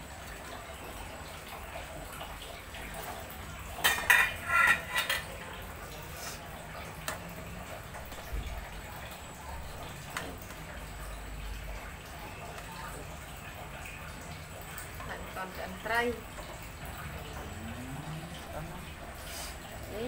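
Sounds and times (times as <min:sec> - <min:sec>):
metal kitchenware clattering: 0:03.7 - 0:05.4.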